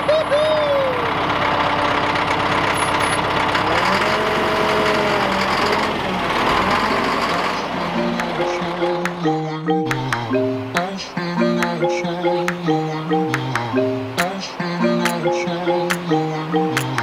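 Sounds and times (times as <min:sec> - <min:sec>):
diesel engine clattering: 0:00.0 - 0:17.0.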